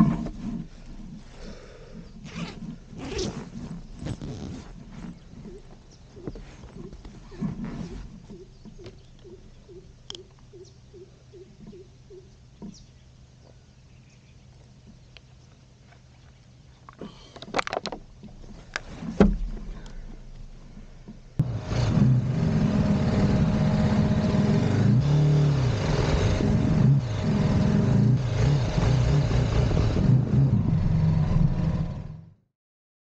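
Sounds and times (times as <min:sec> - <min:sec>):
motorcycle engine revving: 0:02.2 - 0:09.1, 0:21.4 - 0:32.4
gear clicks and knocks: 0:16.8 - 0:21.4.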